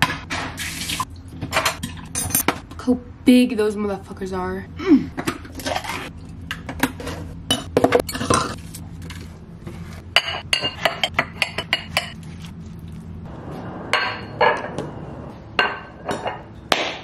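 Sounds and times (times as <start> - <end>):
dishes and cutlery clinking: 10.2 - 12.2.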